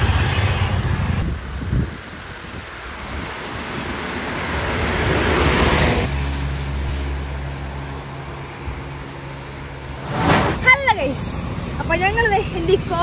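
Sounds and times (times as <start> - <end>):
truck passing on wet road: 2.2 - 11.8.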